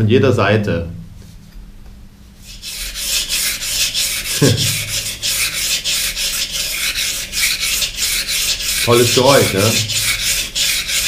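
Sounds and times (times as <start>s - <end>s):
knife scraping on whetstone: 2.4s - 11.0s.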